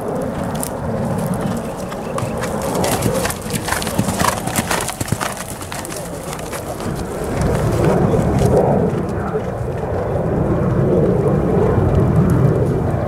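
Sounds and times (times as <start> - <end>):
horse hoofbeats on sandy ground: 0.0 - 10.2.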